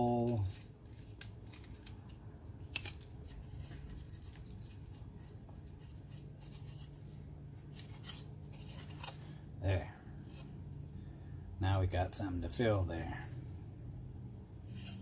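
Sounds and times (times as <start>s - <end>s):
tape crinkling and rubbing: 0.0s - 9.4s.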